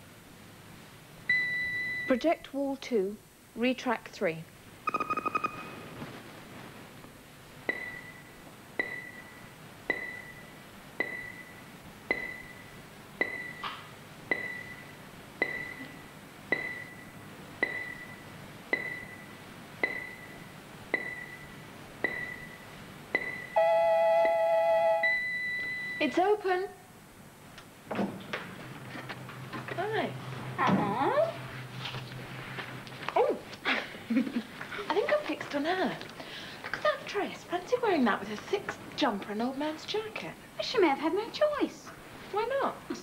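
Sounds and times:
two-tone electronic beep: 4.9 - 5.8, 7.7 - 13.7, 14.3 - 18.2, 18.8 - 20.4, 21.0 - 22.6, 23.2 - 26.1
click with electronic ping: 9.9 - 10.4.

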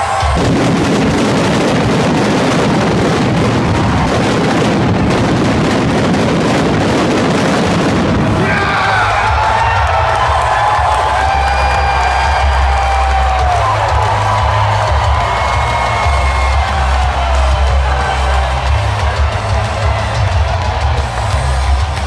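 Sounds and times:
pyrotechnics crackling bangs: 0.0 - 8.7
theme music: 7.8 - 22.0.

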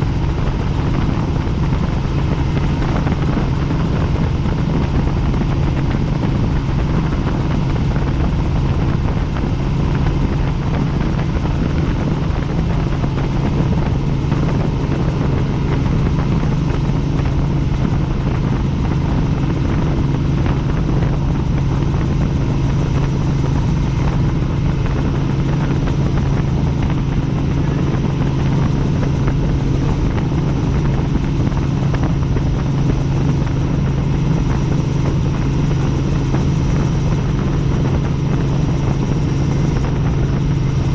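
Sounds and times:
helicopter engine and rotors: 0.0 - 40.9.

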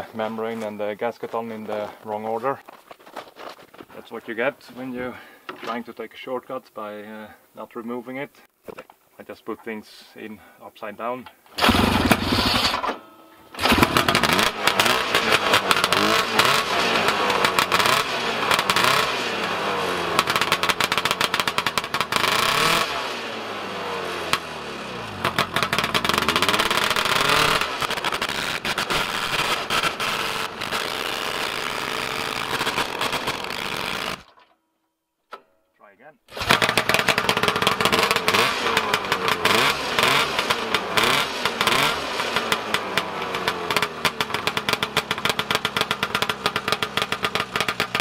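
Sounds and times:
snowmobile engine revving: 11.6 - 34.3, 36.3 - 48.0.

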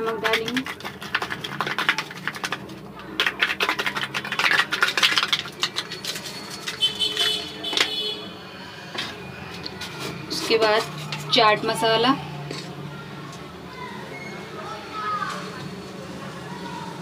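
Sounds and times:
salt shaker rattling: 0.0 - 8.0.

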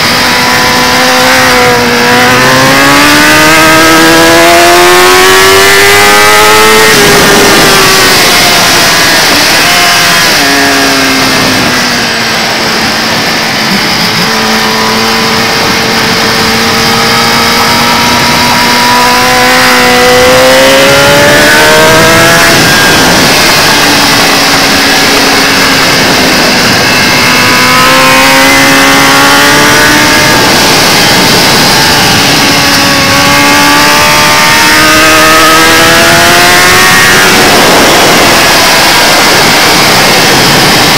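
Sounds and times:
motorcycle engine revving: 0.0 - 40.9
wind rushing over microphone: 0.0 - 40.9.

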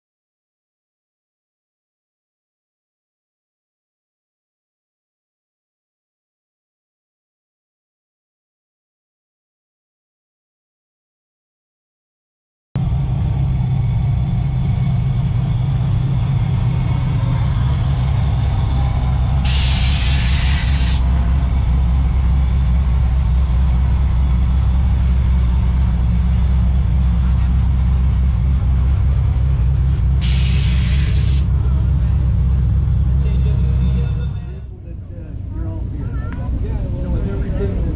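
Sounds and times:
vehicle engine rumbling: 12.8 - 37.9
loud hiss of air: 19.4 - 21.1, 30.2 - 31.5.

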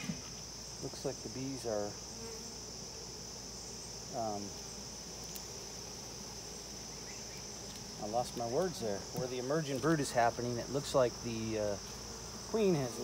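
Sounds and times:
bees buzzing close by: 0.0 - 13.0
insects chirring: 0.0 - 13.0.

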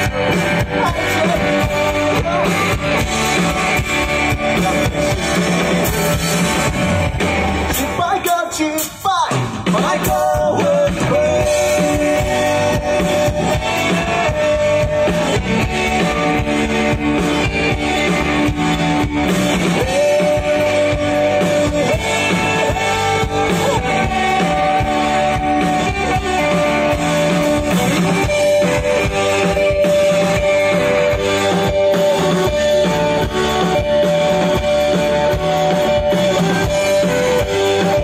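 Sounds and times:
rock band playing: 0.0 - 38.0.

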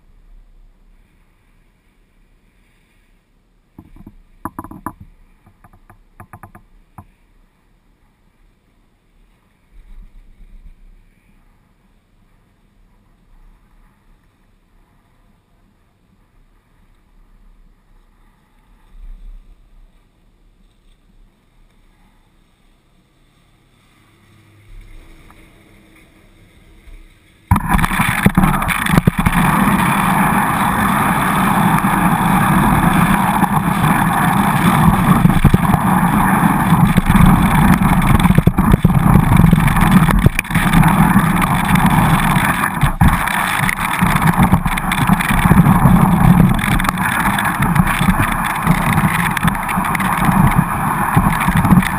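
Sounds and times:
faint knocks: 3.8 - 7.1
skis sliding over snow: 27.0 - 51.9
wind buffeting microphone: 27.5 - 51.9.

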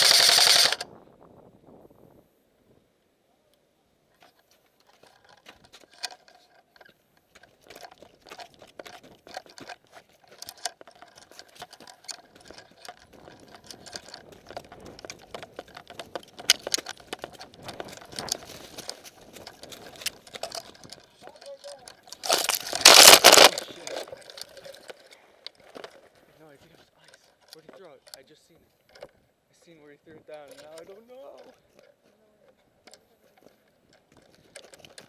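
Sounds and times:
footsteps crunching snow and leaves: 22.1 - 24.5.

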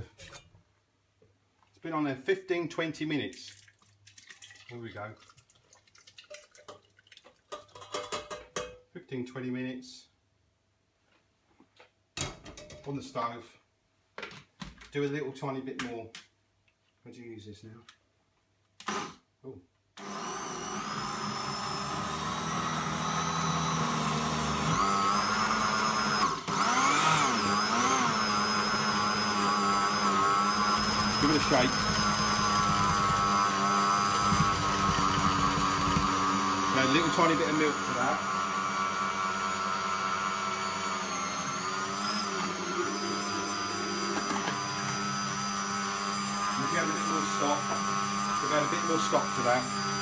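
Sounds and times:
electric blender motor running: 20.0 - 50.0.

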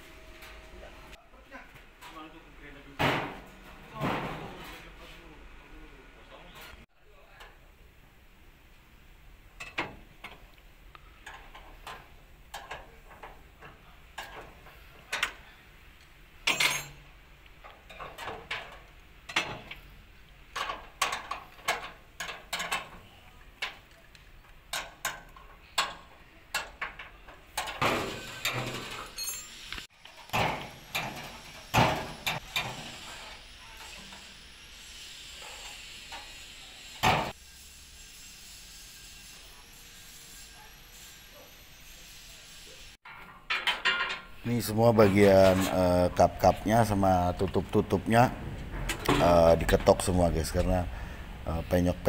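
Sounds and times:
wrench clicking and clanking on metal: 16.0 - 17.1, 17.8 - 19.8, 20.5 - 23.0, 24.6 - 29.6.

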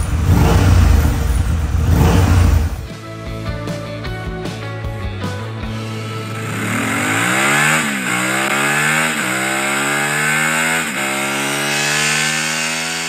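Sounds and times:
motorcycle engine accelerating: 0.0 - 2.9, 5.6 - 13.0.

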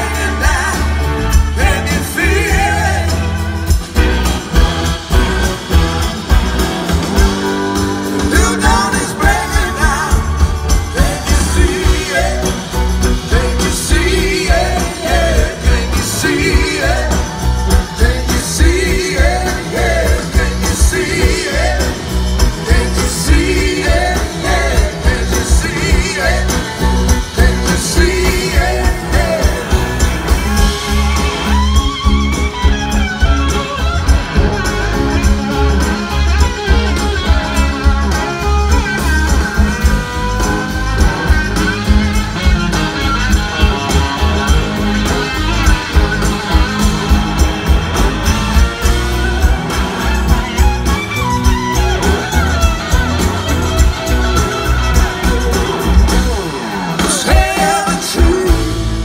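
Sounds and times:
person singing: 0.0 - 3.6, 8.1 - 31.2, 56.8 - 59.0
blues-rock band playing: 0.0 - 59.0.

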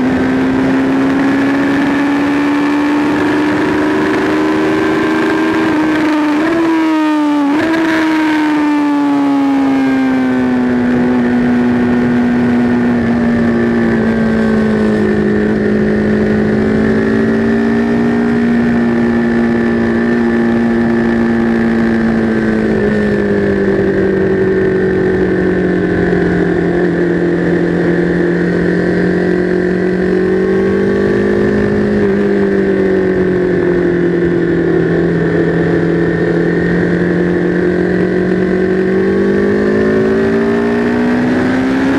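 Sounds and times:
motorcycle engine running: 0.0 - 41.9.

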